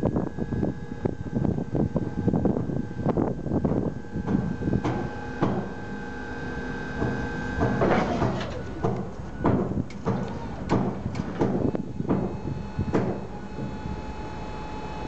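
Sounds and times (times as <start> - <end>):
forklift mast whine: 0.0 - 15.0
metallic clanks and knocks: 7.0 - 13.8.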